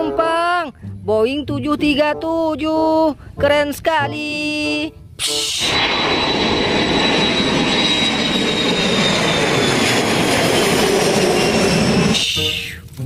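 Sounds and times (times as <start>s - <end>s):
jet engines passing overhead: 5.2s - 12.8s.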